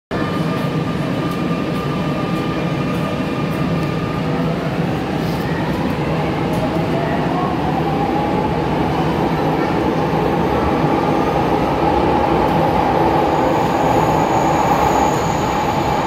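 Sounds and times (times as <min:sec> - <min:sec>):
train motor whine: 0:12.5 - 0:16.0.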